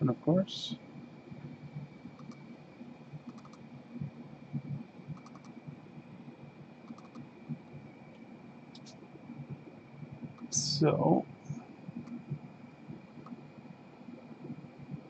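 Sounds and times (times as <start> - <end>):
thin high whine: 0.0 - 15.0
mouse and keyboard clicks: 2.2 - 2.4, 3.3 - 3.6, 5.2 - 5.6, 6.9 - 7.3.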